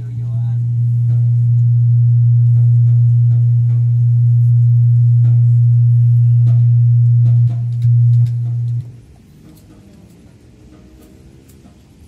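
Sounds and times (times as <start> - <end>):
low-pitched sine test tone: 0.0 - 9.2.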